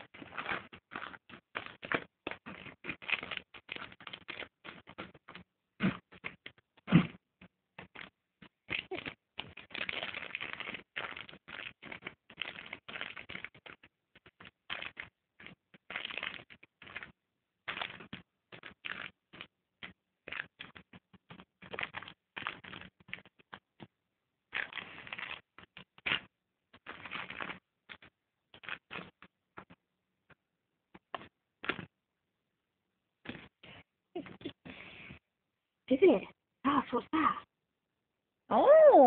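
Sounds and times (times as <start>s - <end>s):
snack bag crinkling: 0.0s - 7.2s, 7.8s - 23.8s, 24.5s - 29.3s.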